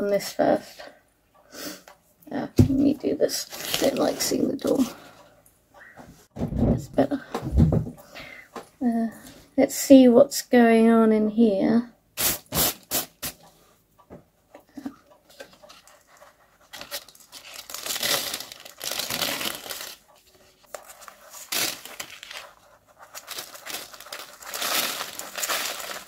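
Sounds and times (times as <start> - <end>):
perlite crinkling and rustling: 2.8 - 5.2, 14.5 - 26.0.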